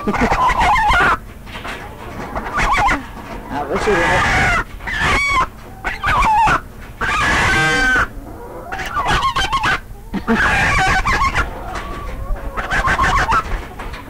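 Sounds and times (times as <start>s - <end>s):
chickens clucking and squawking: 0.0s - 14.0s.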